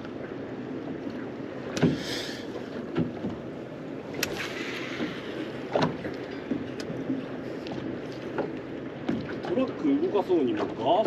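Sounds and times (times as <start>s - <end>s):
water wash: 0.0s - 11.0s
wind: 0.0s - 11.0s
knocks against boat hull: 1.7s - 2.0s, 2.9s - 3.4s, 8.4s - 9.6s.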